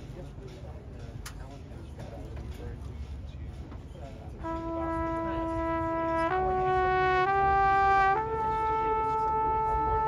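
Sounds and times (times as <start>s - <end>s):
brass instrument long held notes: 4.4s - 10.0s.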